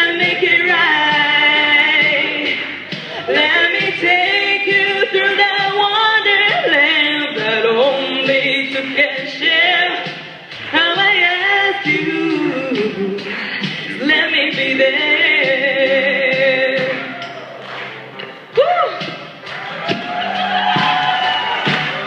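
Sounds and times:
woman singing pop ballad: 0.0 - 17.1
singer breath: 13.2 - 14.0.

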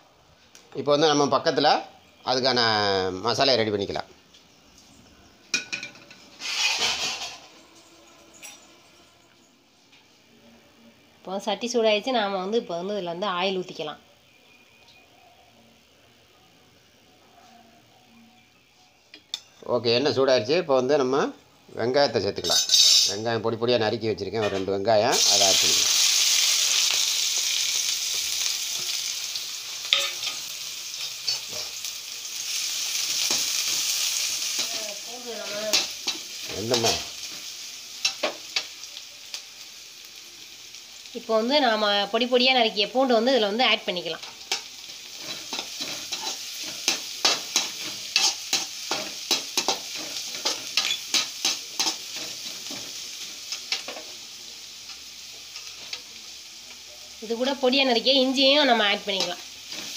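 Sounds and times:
onions sizzling in hot oil: 0.0 - 59.9
metal spoon scraping pan: 5.6 - 7.6, 44.3 - 52.9.

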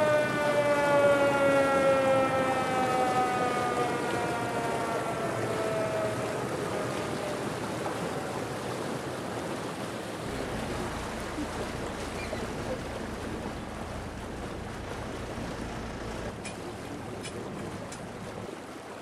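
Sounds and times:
water washing past boat: 0.0 - 19.0
wind: 0.0 - 19.0
low engine rumble: 10.2 - 18.7.

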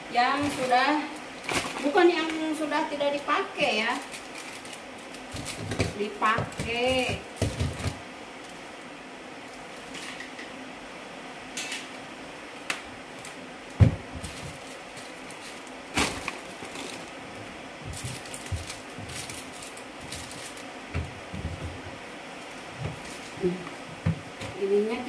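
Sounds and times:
objects knocking in plastic box: 5.3 - 8.0, 17.8 - 22.0.

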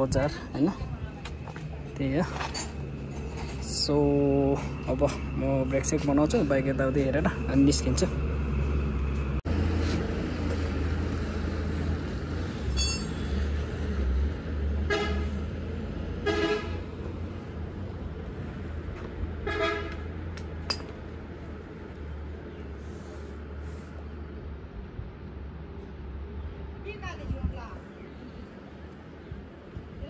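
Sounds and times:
low engine hum: 0.0 - 30.0
vehicle horns tooting: 14.9 - 15.3, 16.2 - 16.8, 19.4 - 20.0.

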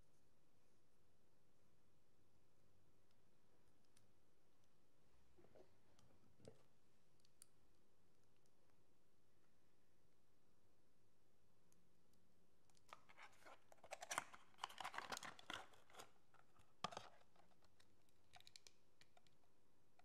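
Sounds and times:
small clicks and scrapes: 12.7 - 20.0.

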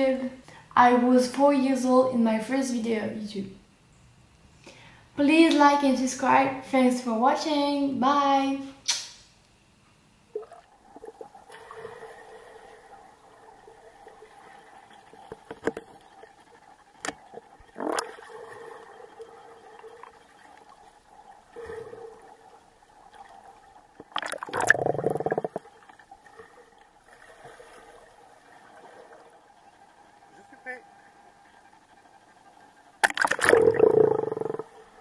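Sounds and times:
muffled underwater hum: 9.6 - 35.0
churning water: 10.4 - 32.0, 33.0 - 35.0.

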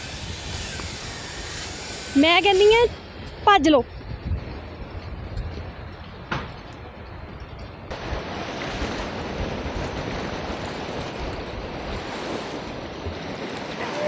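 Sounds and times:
waves washing onto beach: 7.9 - 14.0.

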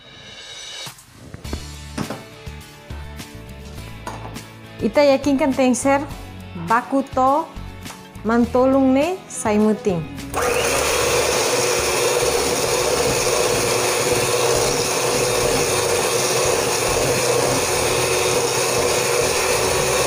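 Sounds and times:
electric hand mixer whisking: 10.3 - 20.0.

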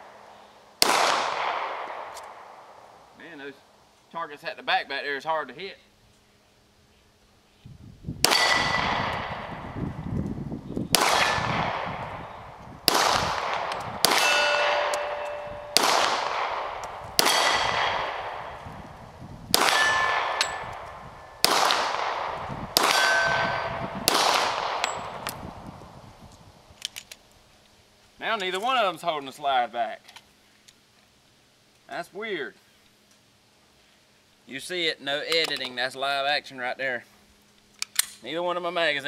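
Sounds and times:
pistol shots with echo: 0.8 - 2.6, 8.2 - 9.7, 10.9 - 18.6, 19.5 - 25.2
steel targets ringing: 8.3 - 8.9, 14.1 - 16.4, 19.6 - 21.5, 22.8 - 23.9.

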